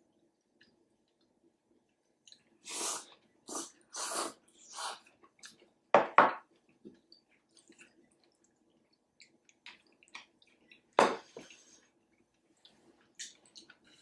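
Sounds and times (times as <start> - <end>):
slurping noodles: 2.6 - 5.1.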